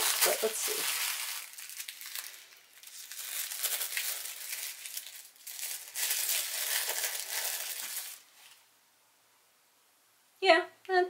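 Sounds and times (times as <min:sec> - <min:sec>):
tissue paper crinkling: 0:00.0 - 0:08.7.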